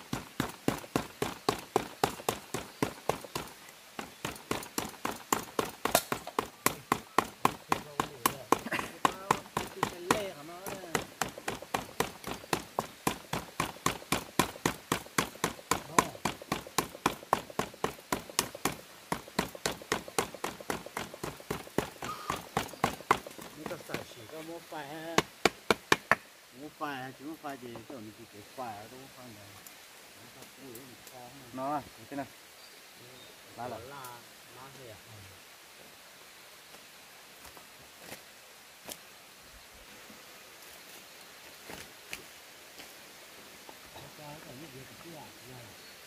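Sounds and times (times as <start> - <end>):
rapid sharp knocks: 0.0 - 24.2, 25.1 - 26.2
quick crunching footsteps: 0.0 - 24.6.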